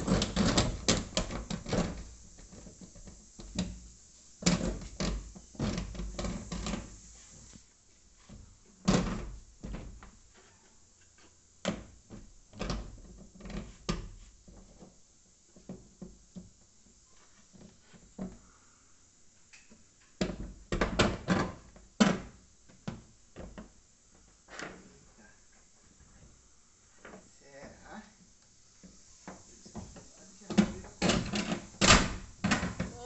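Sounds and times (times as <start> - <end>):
knocks and clunks of plastic air cooler: 0.0 - 2.1, 30.5 - 33.0.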